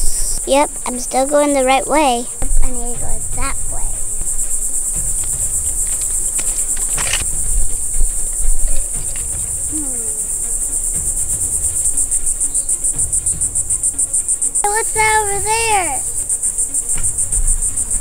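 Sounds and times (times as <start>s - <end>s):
high-pitched insect trill: 0.0s - 18.0s
knocks or rustles: 2.3s - 14.6s.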